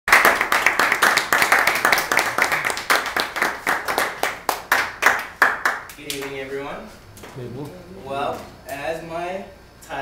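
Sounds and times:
people applauding: 0.1s - 6.3s.

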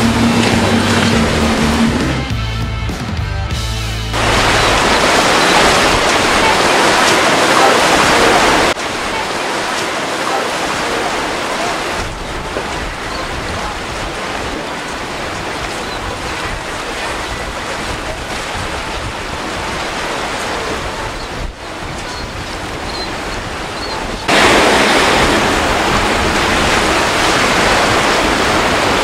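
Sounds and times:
choppy water rushing and breaking: 0.0s - 2.3s, 4.1s - 29.0s
wind on microphone: 4.2s - 29.0s.

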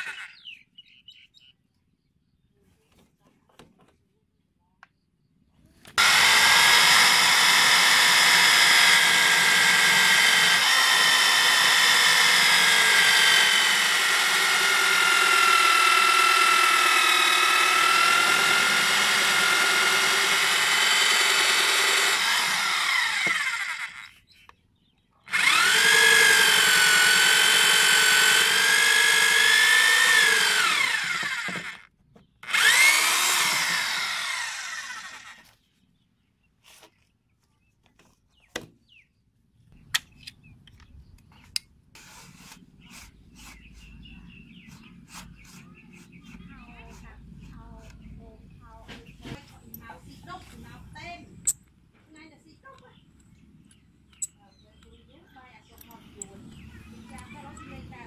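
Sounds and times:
electric drill hole saw cutting pipe: 0.0s - 0.5s, 6.0s - 24.2s, 25.3s - 35.5s.

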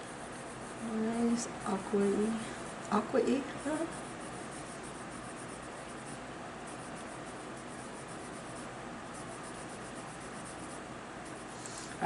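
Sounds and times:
colored pencil scratching on paper: 0.0s - 12.0s.

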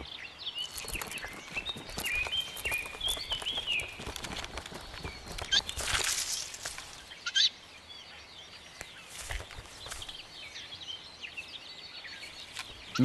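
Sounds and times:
bird chirps: 0.0s - 13.0s
scratching and rustling: 0.6s - 7.1s.

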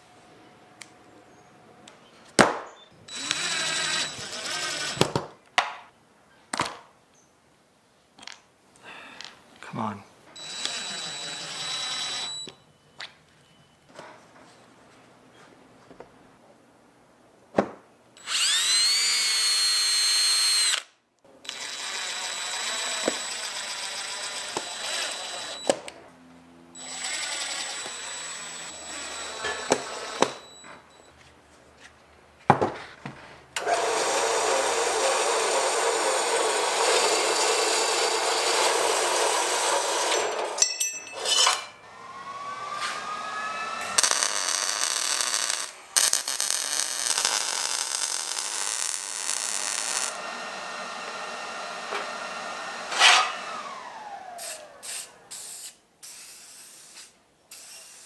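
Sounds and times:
power tools running: 3.1s - 5.2s, 10.4s - 12.5s, 18.2s - 20.8s, 21.4s - 25.9s, 26.7s - 30.6s, 33.6s - 40.6s, 41.2s - 55.0s.

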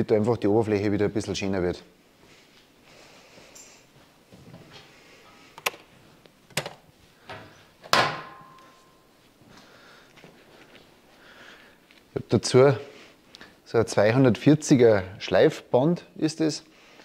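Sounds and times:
ringing metallic clank: 8.0s - 9.1s.

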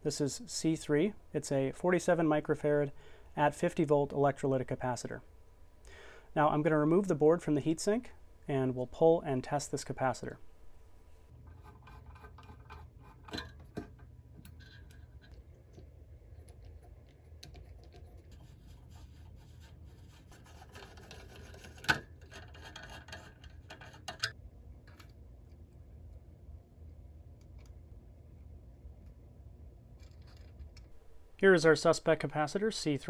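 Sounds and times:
screwdriver scraping metal: 20.4s - 24.2s.

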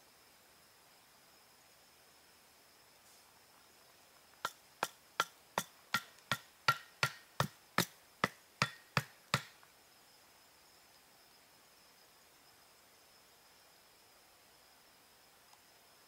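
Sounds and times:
hatchet knocking wooden stake: 4.4s - 9.6s.

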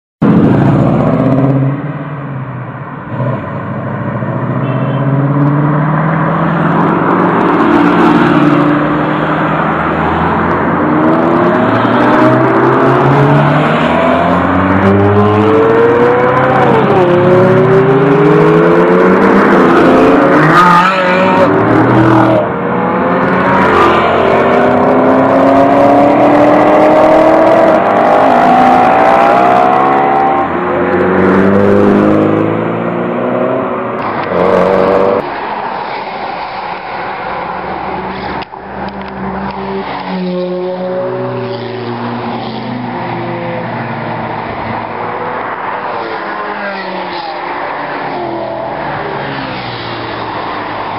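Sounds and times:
sports car engines revving: 3.0s - 50.9s.

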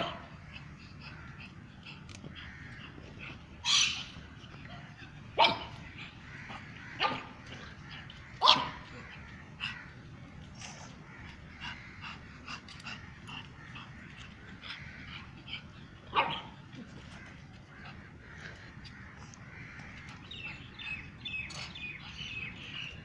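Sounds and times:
dog barking: 0.0s - 0.3s, 5.4s - 5.8s, 7.0s - 7.3s, 8.4s - 8.9s, 16.1s - 16.5s.

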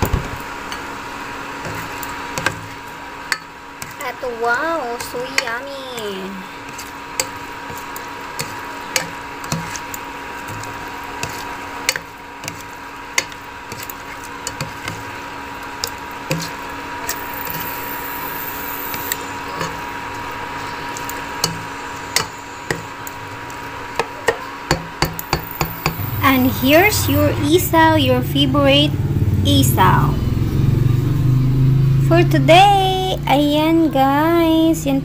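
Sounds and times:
cooktop hum: 0.0s - 35.0s
food sizzling in a pot: 0.4s - 27.2s.

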